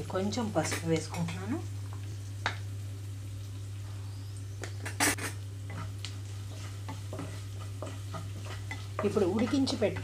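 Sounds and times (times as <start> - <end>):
onions frying: 0.0 - 10.0
wooden spatula scraping pan: 4.8 - 10.0.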